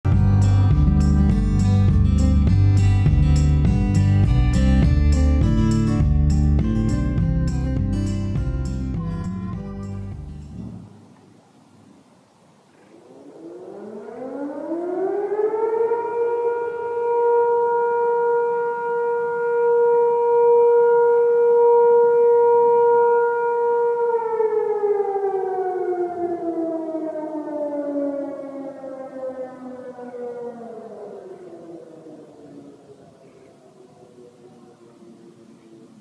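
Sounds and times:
warning siren: 0.1 - 5.5, 12.9 - 36.0.

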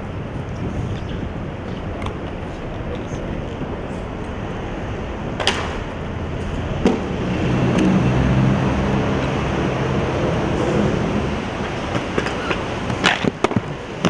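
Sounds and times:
skateboard wheels rolling on pavement: 0.0 - 14.0
skateboard wheels clacking over joints: 5.4 - 5.9, 11.6 - 14.0.

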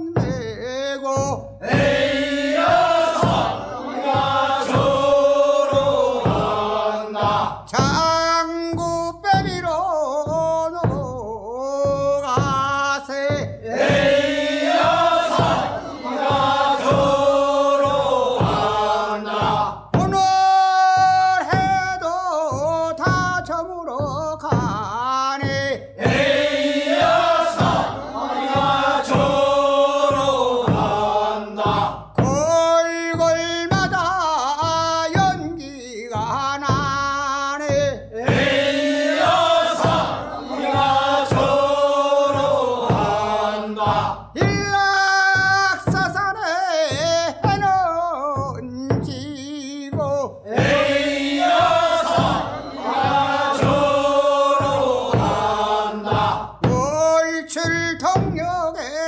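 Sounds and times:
man singing lead: 0.0 - 2.2, 7.5 - 14.3, 19.1 - 26.2, 31.6 - 38.7, 43.6 - 51.8, 55.9 - 59.0
group of men singing: 0.0 - 59.0.

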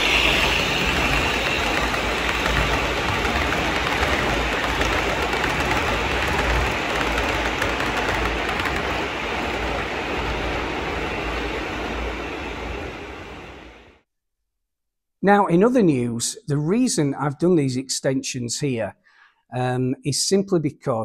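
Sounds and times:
model train rumbling on track: 0.0 - 13.9.

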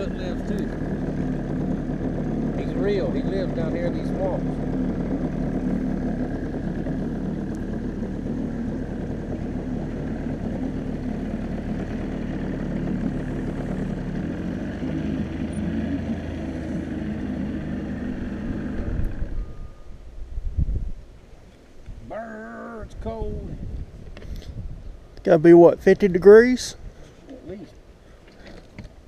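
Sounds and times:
outboard motor running: 0.0 - 20.0.

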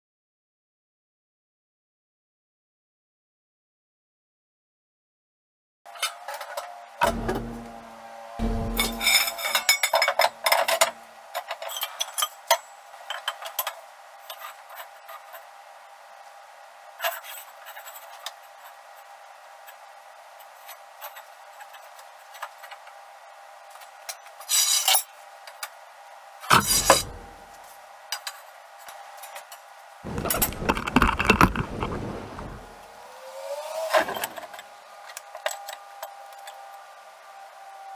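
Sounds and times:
steel parts clanking and scraping: 8.4 - 15.2, 24.4 - 25.1, 26.5 - 27.6, 30.1 - 32.7.

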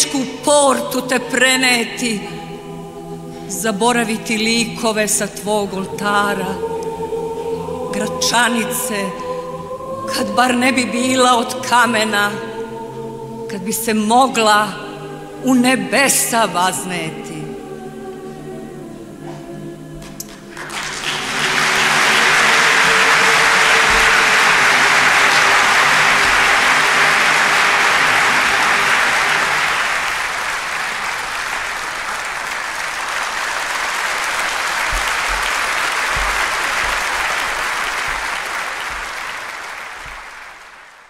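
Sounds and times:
choir holding a chord: 0.0 - 40.8
large audience applauding: 20.0 - 41.0.

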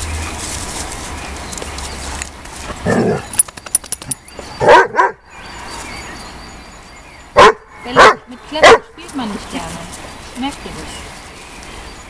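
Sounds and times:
dog barking: 4.6 - 5.2, 7.4 - 8.9.

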